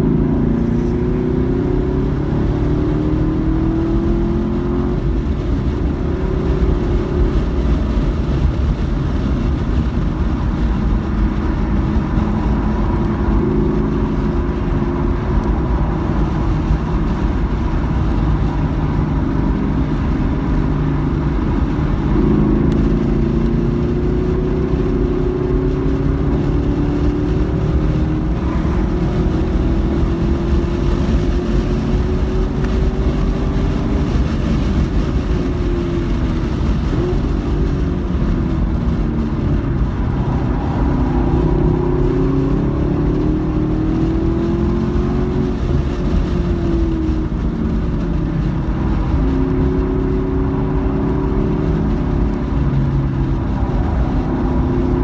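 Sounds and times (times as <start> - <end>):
car engine accelerating: 0.0 - 55.0
road and wind noise: 0.0 - 55.0.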